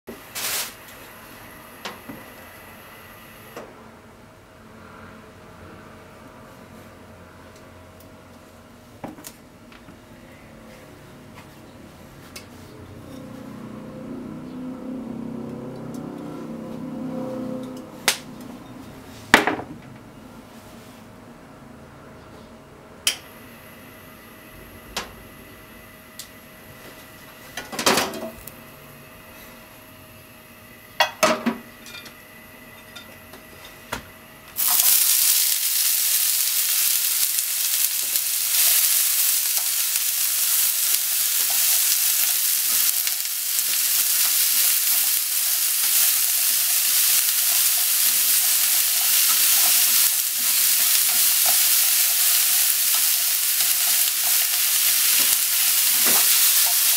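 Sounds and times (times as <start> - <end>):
food sizzling in frying pan: 0.1 - 3.6, 34.6 - 56.9
chopsticks stirring: 34.6 - 56.9.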